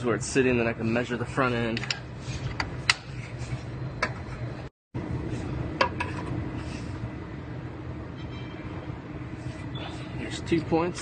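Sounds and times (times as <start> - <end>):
low shop hum: 0.0 - 11.0.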